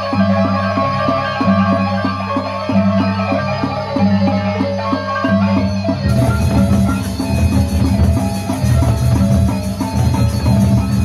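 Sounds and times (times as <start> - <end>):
barrel drums beating: 6.0 - 11.0.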